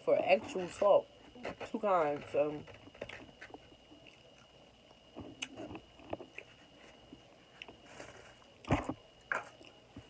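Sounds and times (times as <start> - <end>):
person chewing food: 2.8 - 10.0.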